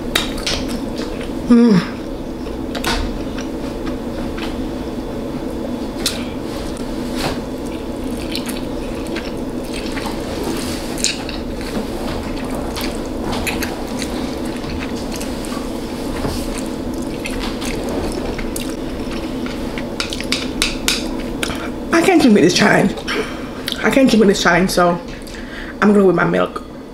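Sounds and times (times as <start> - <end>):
low room hum: 0.0 - 26.9
wet chewing: 7.6 - 21.8.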